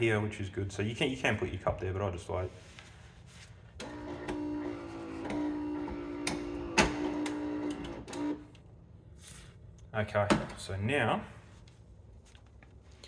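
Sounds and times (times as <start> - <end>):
coffee machine pump humming: 3.8 - 8.6.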